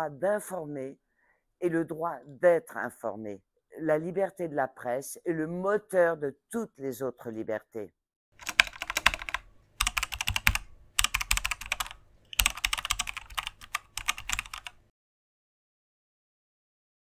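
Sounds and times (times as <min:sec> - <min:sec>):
keyboard keys clicking: 0:08.4 - 0:14.8.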